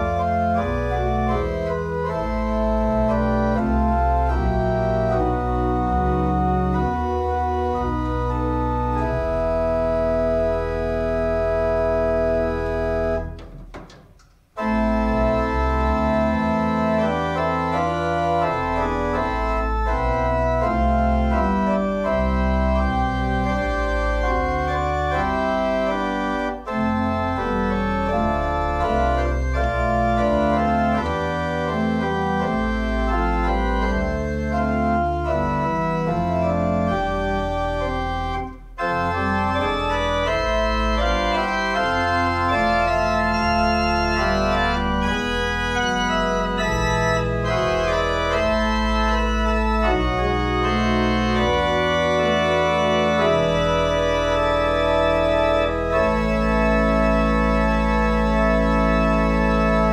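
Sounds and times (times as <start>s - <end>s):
pipe organ playing chords: 0.0s - 13.6s, 14.4s - 59.9s.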